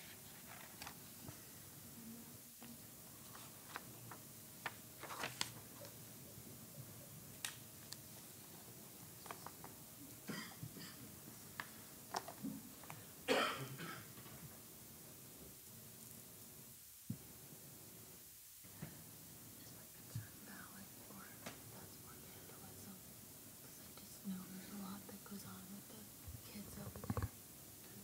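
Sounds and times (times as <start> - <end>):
small clicks and handling noises: 9.2 - 9.8, 11.5 - 13.0
person coughing: 10.2 - 11.1, 13.3 - 14.2.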